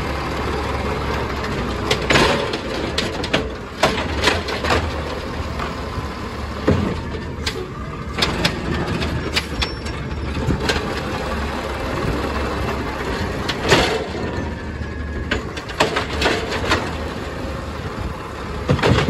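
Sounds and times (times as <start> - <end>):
garbage truck engine running: 0.0 - 19.0
clanks from loader arm and cart: 0.5 - 19.0.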